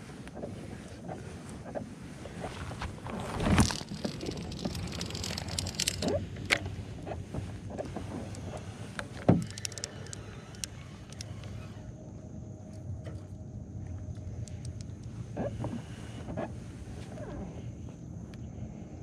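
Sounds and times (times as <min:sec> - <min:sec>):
clothing rubbing on microphone: 0:00.0 - 0:06.4, 0:15.2 - 0:17.9
fishing reel clicks: 0:03.7 - 0:06.7, 0:09.4 - 0:11.6.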